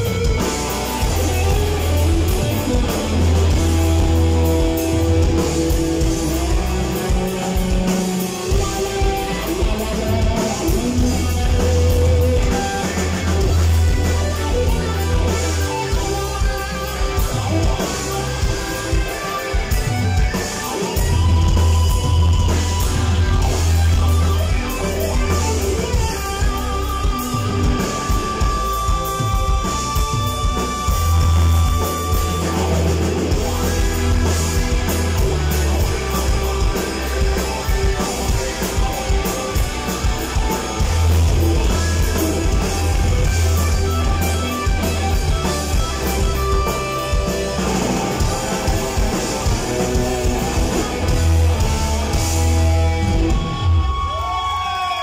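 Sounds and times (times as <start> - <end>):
drum kit: 0.0 - 55.0
electric guitar: 0.0 - 55.0
keyboards: 0.0 - 55.0.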